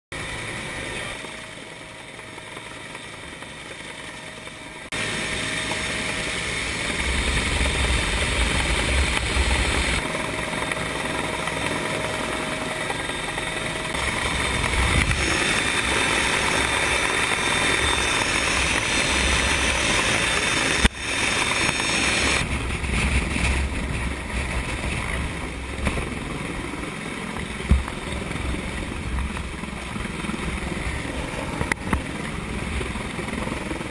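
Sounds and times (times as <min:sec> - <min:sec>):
helicopter rotor and engine: 0:00.1 - 0:33.9
wind rumbling on microphone: 0:14.0 - 0:33.9.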